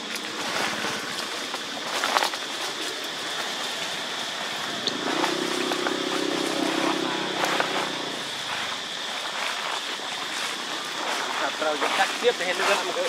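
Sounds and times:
low motor hum: 0.0s - 11.4s
footsteps on dry leaves: 0.0s - 13.0s
high-pitched drone: 2.8s - 9.4s.

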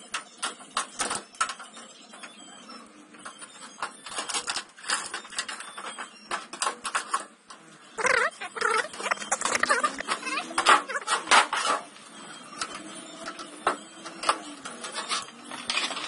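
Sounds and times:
sheet metal and plastic rattling: 3.2s - 7.3s, 8.0s - 11.9s.

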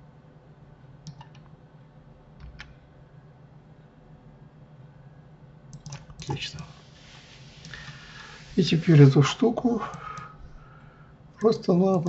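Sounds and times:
low steady hum: 0.0s - 12.0s
computer keys and mouse clicks: 1.0s - 1.5s, 2.4s - 2.8s, 5.7s - 6.3s.

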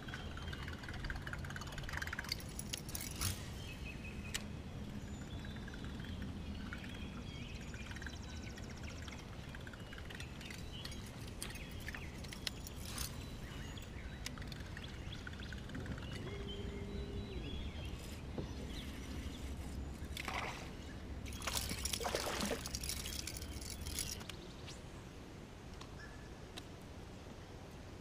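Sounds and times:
water splashing and sloshing: 18.4s - 24.2s.

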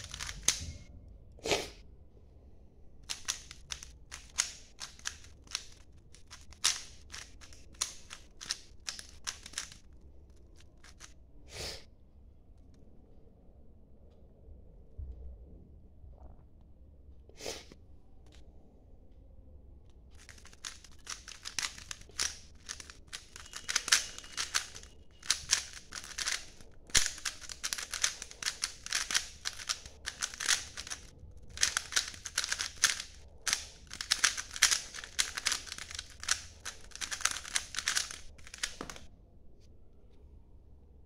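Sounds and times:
puzzle cube plastic clicking: 0.0s - 0.7s, 3.0s - 11.2s, 20.1s - 39.1s.

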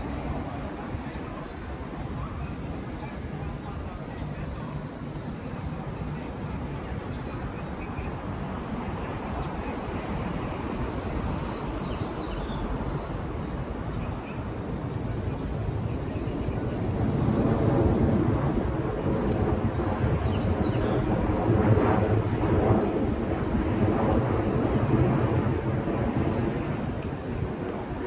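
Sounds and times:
crowd noise: 0.0s - 17.4s
traffic rumble: 0.0s - 28.0s.

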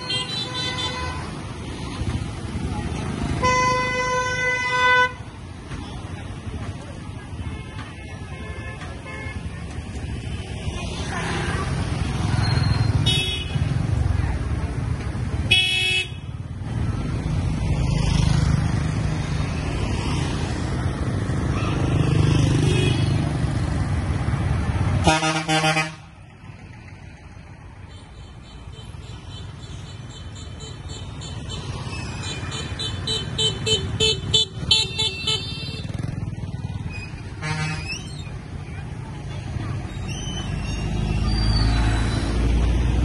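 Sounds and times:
motorbikes and cars passing: 0.0s - 43.0s
loud vehicle horn blast: 25.0s - 26.1s, 37.4s - 37.9s.

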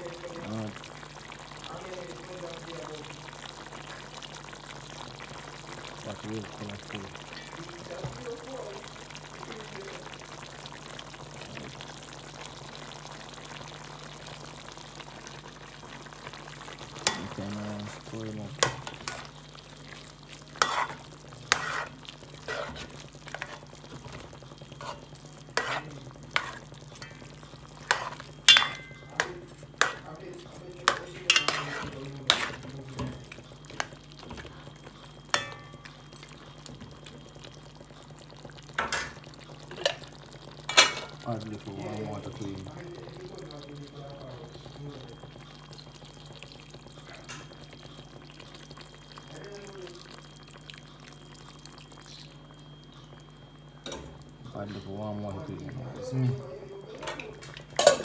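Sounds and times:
food sizzling in a pot: 0.0s - 58.0s
metal spoon scraping a pot: 20.6s - 23.7s, 24.8s - 27.2s, 27.8s - 30.0s, 31.3s - 32.6s.

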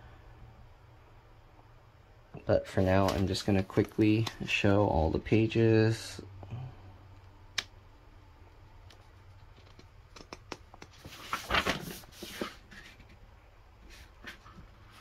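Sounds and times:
paper page turning: 10.9s - 13.1s.

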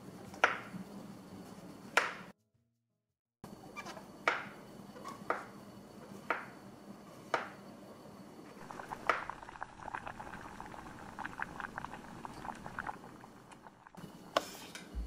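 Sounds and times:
liquid boiling and bubbling: 8.5s - 14.7s.

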